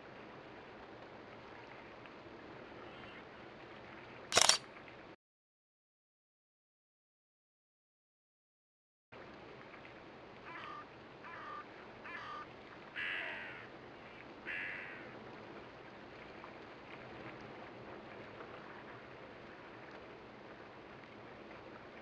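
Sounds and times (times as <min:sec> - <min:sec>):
crow cawing: 0:10.5 - 0:13.7, 0:14.5 - 0:15.1.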